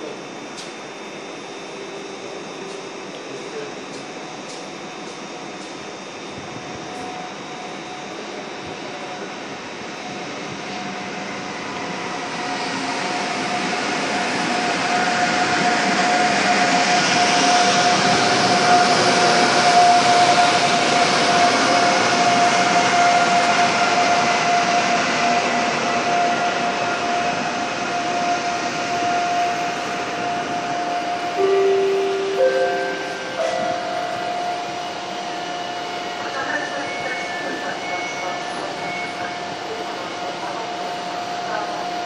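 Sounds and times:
locomotive high whine: 0.0 - 41.6.

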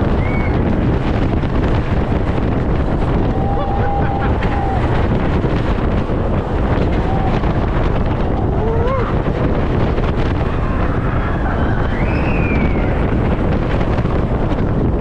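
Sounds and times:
roller coaster rumbling on track: 0.0 - 15.0
wind rushing over microphone: 0.0 - 15.0
riders yelling: 3.3 - 5.0.

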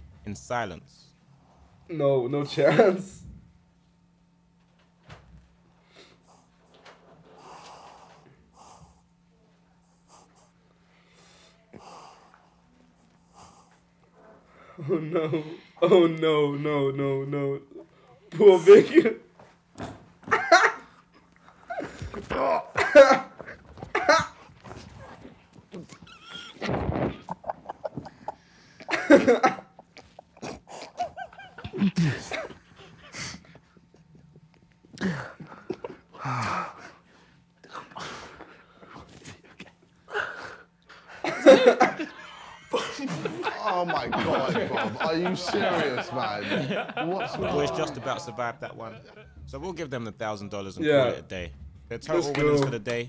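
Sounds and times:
steady low hum: 0.0 - 53.0
men coughing and groaning: 2.5 - 3.3, 14.6 - 16.2, 18.4 - 19.3, 20.2 - 34.2, 34.9 - 37.0, 39.2 - 49.5.

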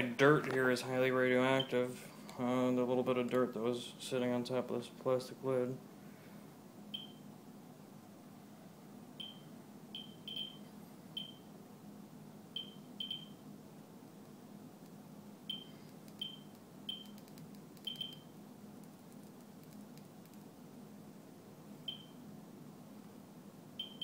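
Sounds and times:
geiger counter beeps: 10.0 - 10.6, 12.6 - 13.4, 23.8 - 24.0.

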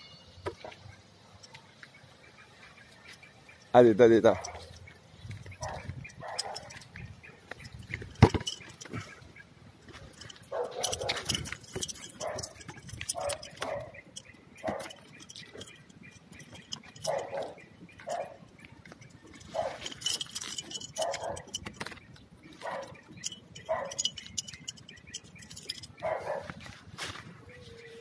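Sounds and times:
dog barking: 4.3 - 4.8, 5.6 - 6.8, 10.5 - 11.4, 12.2 - 14.0, 14.6 - 15.0, 17.0 - 18.4, 19.5 - 19.9, 20.9 - 21.5, 22.6 - 23.0, 23.7 - 24.1, 25.9 - 26.6.

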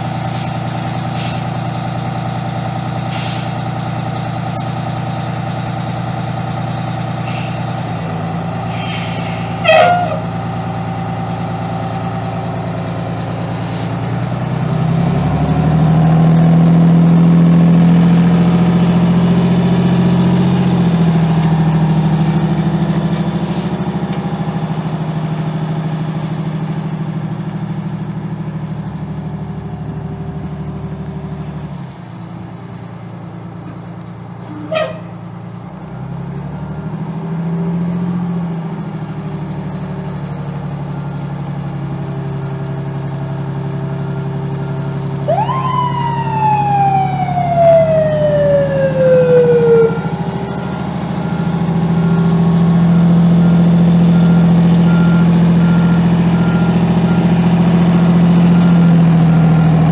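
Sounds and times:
diesel engine running: 0.0 - 59.9
siren wail: 9.6 - 10.4, 45.1 - 59.8.

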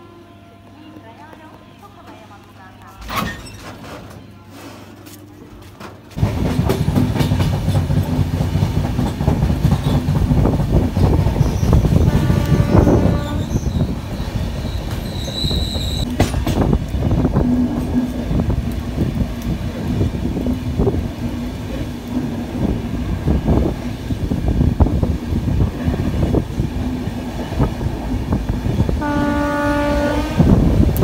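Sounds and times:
train wheels rumbling on track: 5.8 - 31.0
train horn: 12.0 - 13.8, 28.9 - 30.7
high squeal: 13.3 - 16.1.

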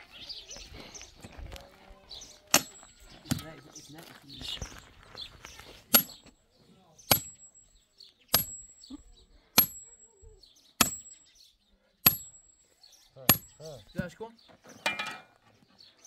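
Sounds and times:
sledgehammer striking steel bar: 2.5 - 3.5, 5.9 - 6.2, 7.1 - 7.6, 8.3 - 8.8, 9.6 - 10.0, 10.8 - 11.2, 12.0 - 12.6, 13.3 - 13.6
man speaking: 13.2 - 14.4.

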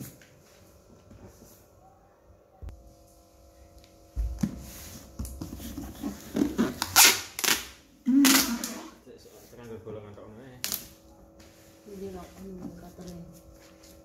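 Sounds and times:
hands rubbing cardboard: 4.6 - 7.1.

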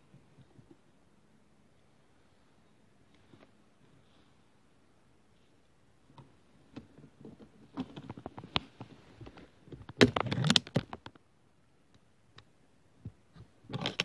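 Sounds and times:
small clicks and knocks: 11.9 - 14.0.

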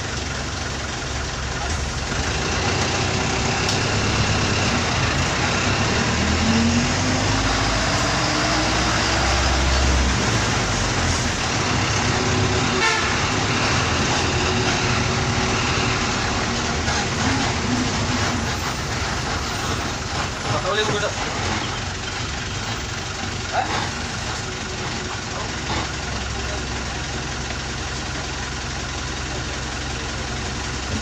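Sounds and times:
bus engine running: 0.0 - 31.0.

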